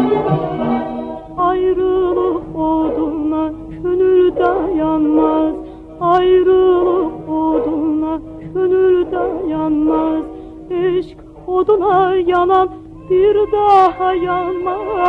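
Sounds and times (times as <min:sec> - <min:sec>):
sustained brass chords: 0:00.0 - 0:11.5
ornamented lead instrument phrases: 0:00.0 - 0:15.0
steady held note: 0:00.0 - 0:15.0.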